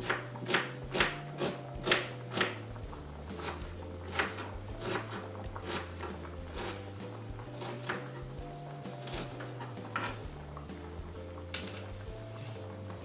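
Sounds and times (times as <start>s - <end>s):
knife chopping on cutting board: 0.0s - 2.7s, 3.3s - 6.9s, 7.5s - 8.2s, 9.0s - 10.2s.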